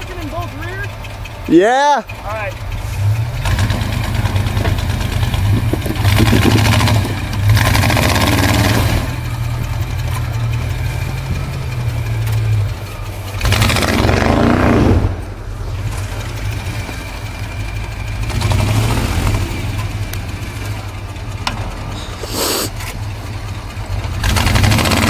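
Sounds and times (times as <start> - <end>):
truck engine revving under load: 0.0 - 25.0.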